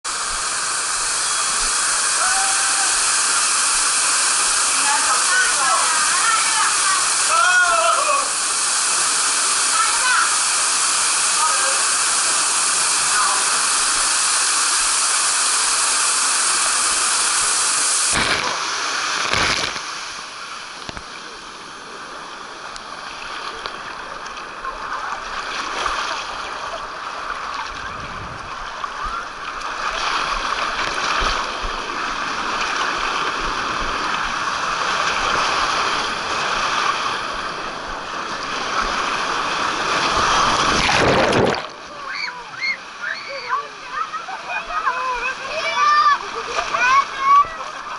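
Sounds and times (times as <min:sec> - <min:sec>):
loud steady hiss: 0:00.0 - 0:24.6
water rushing down a flume: 0:00.1 - 0:47.9
water splashing: 0:00.1 - 0:47.9.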